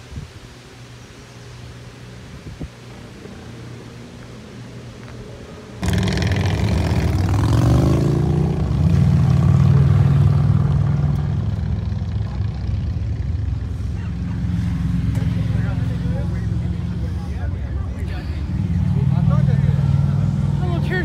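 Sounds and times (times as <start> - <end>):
car engine revving and running: 5.8 - 21.0.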